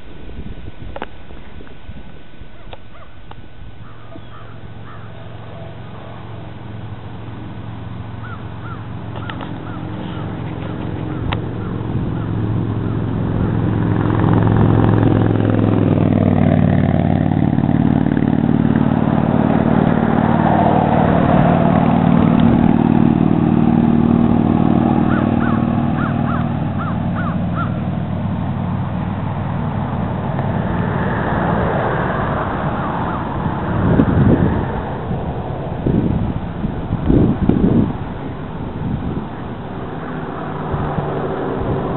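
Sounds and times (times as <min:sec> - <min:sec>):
vehicle engine passing: 0:03.6 - 0:41.9
crows calling: 0:03.8 - 0:06.3, 0:08.2 - 0:13.5, 0:25.0 - 0:27.8.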